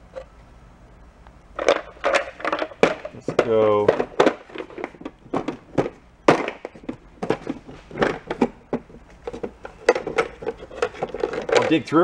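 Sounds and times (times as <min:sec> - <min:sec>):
small knobs clattering: 0:06.6 - 0:12.0.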